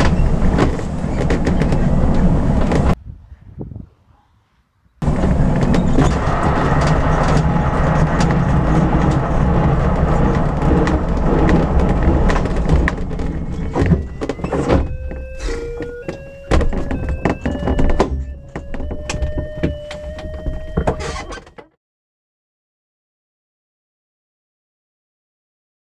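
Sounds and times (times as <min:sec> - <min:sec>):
wheel rumbling and rattling on grass: 0:00.0 - 0:03.0, 0:05.0 - 0:21.6
short tones rising in pitch: 0:13.3 - 0:21.6.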